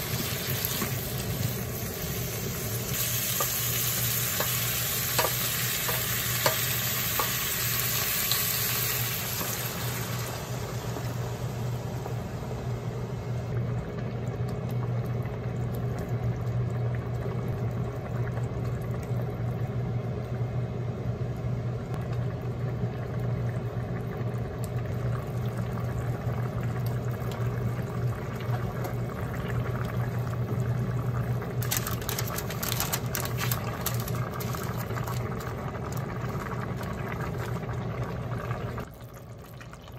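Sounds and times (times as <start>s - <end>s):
food sizzling in oil: 0.0s - 11.7s
broth simmering: 0.0s - 39.9s
parchment paper crinkling: 31.6s - 35.2s.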